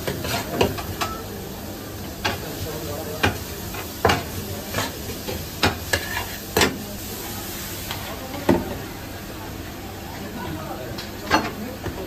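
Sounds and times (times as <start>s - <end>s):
meat sizzling: 0.0s - 9.3s.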